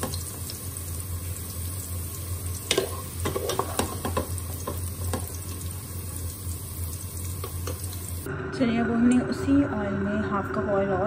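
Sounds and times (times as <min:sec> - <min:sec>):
vegetables sizzling in hot oil: 0:00.0 - 0:08.3
wooden spoon scraping a pan: 0:02.8 - 0:04.8.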